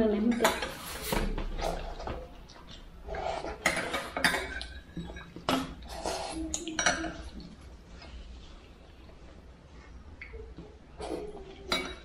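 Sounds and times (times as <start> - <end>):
cutlery clinking on dishes: 3.5 - 5.9, 6.5 - 7.4, 11.1 - 12.0.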